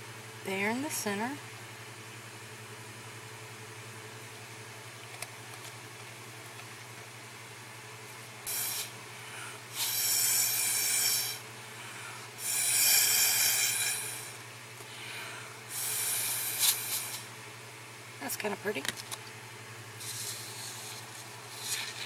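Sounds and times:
hissing air blasts: 8.4s - 9.0s, 9.7s - 11.4s, 12.4s - 14.4s, 15.7s - 17.3s, 20.0s - 22.0s.

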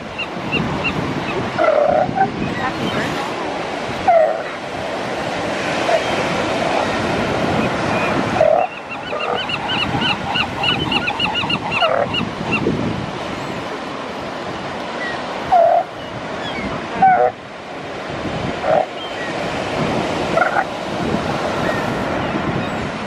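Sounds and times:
surf washing: 0.0s - 23.0s
seal yelping calls: 1.2s - 3.1s, 4.0s - 4.6s, 8.0s - 12.6s, 15.4s - 17.4s, 18.6s - 19.1s, 20.3s - 20.7s.

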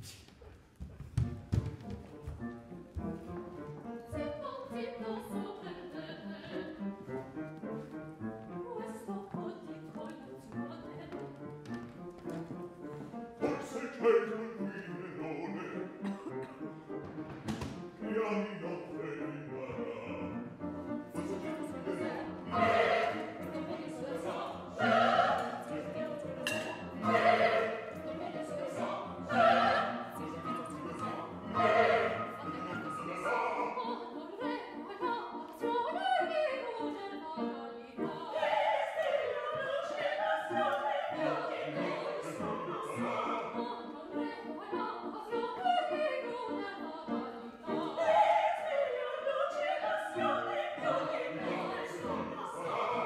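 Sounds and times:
piano accompaniment: 1.0s - 53.0s
woman singing opera: 4.0s - 6.8s, 8.5s - 11.4s, 21.2s - 53.0s.

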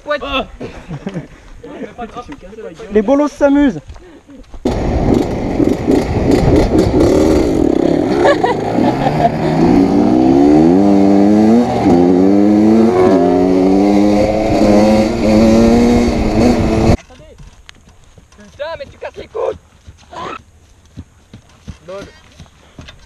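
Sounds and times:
wind on microphone: 4.7s - 7.8s, 12.6s - 17.0s
dirt bike engine accelerating: 4.7s - 17.0s.

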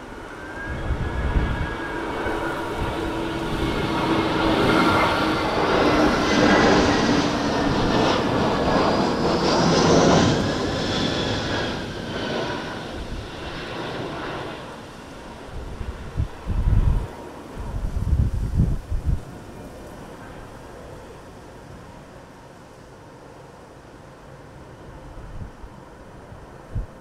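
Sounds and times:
jet engines passing: 0.0s - 27.0s
wind buffeting microphone: 0.1s - 9.5s, 12.1s - 13.8s, 15.2s - 20.6s, 25.1s - 27.0s.

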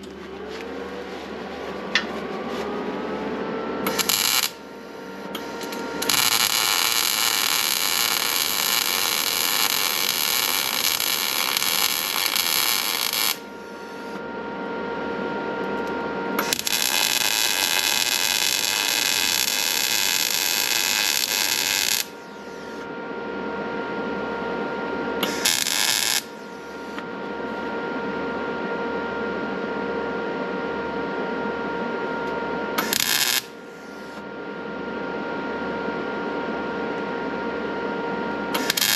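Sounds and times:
steady high whine: 0.0s - 38.9s
welding arc crackling: 3.9s - 14.2s, 16.4s - 22.8s, 25.2s - 26.4s, 32.8s - 33.6s, 38.6s - 38.9s.

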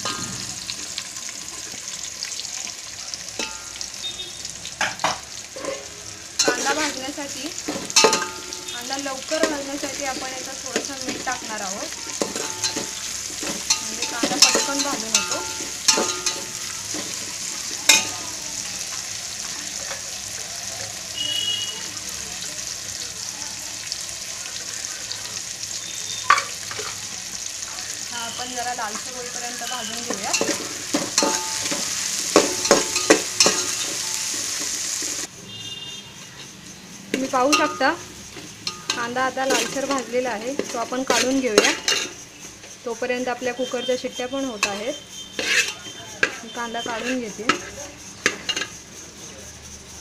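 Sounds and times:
onions sizzling in hot oil: 0.0s - 50.0s
pot knocks and scrapes: 45.4s - 46.4s.

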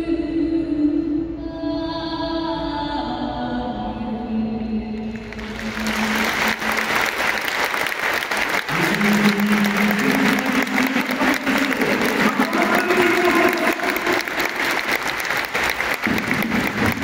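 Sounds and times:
stadium crowd applauding and cheering: 5.0s - 17.0s.

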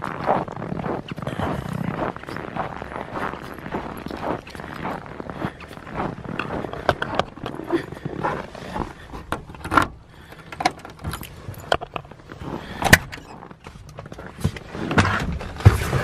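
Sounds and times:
footsteps in snow: 0.0s - 9.1s
keys jangling: 10.8s - 12.0s.

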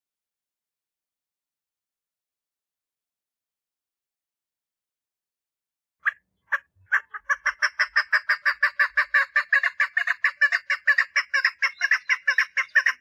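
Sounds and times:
partridge clucking calls: 6.0s - 13.0s.

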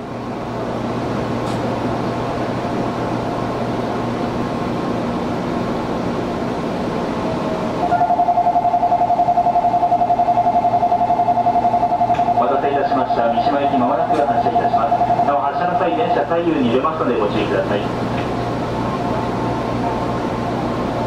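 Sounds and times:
air conditioning humming: 0.0s - 21.0s
pulsing departure bell: 7.8s - 13.1s, 14.5s - 15.6s.

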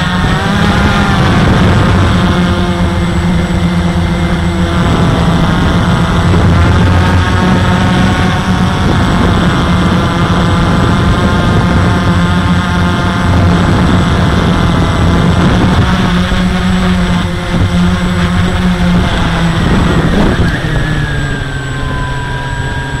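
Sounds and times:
quadcopter motors buzzing whine: 0.0s - 23.0s.

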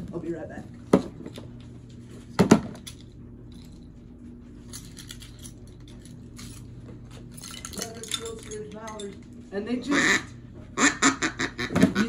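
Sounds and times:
steady low hum: 0.0s - 12.0s
light clicks and rattles: 4.7s - 9.4s.

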